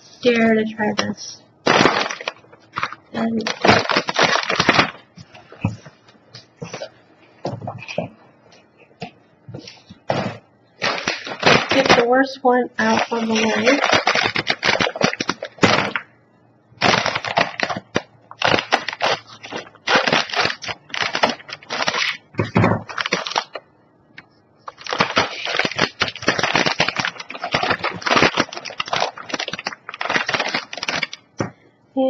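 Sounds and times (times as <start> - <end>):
plastic snack bag crackling: 1.6 - 5.1, 10.8 - 12.2, 12.8 - 16.0, 16.8 - 23.6, 24.7 - 31.4.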